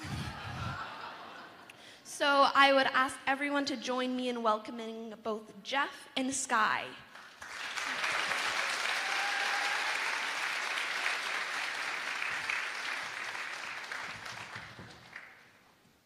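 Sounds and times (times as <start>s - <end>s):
audience applauding: 7.2s - 15.7s.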